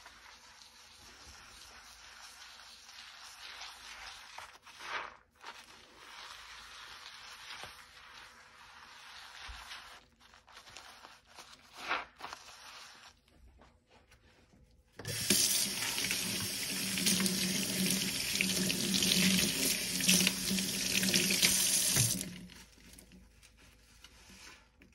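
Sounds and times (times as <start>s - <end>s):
sponge scrubbing: 0.0s - 14.4s, 15.0s - 24.9s
water running into a sink: 15.0s - 22.6s.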